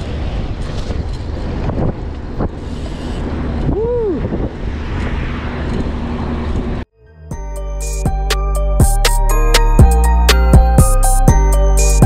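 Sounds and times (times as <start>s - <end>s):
bicycle tyres rumbling on asphalt: 0.0s - 6.8s
wind buffeting microphone: 0.0s - 6.9s.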